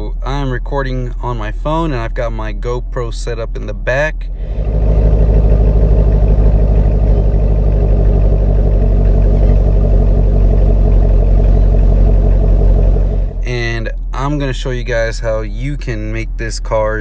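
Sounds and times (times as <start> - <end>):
car engine idling loudly: 4.2 - 15.8.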